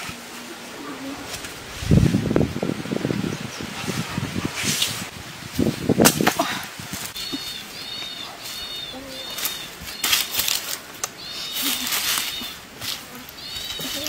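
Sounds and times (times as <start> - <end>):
bare feet on dry leaves: 4.5 - 14.0
fruit thudding into dry leaves: 5.6 - 7.2, 9.3 - 10.9
bird chirping high: 7.1 - 10.5, 11.1 - 12.7, 13.3 - 14.0.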